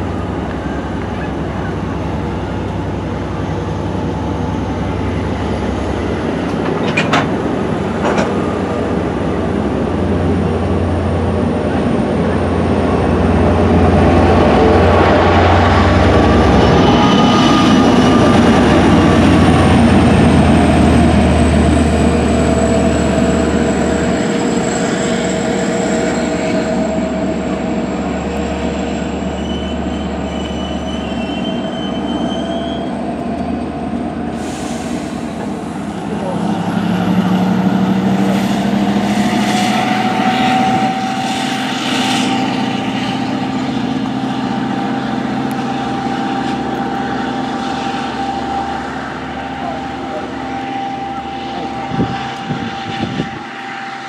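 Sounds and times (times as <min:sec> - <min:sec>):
low drone: 0:00.0 - 0:54.0
train wheels squealing: 0:14.8 - 0:20.0, 0:21.2 - 0:33.7.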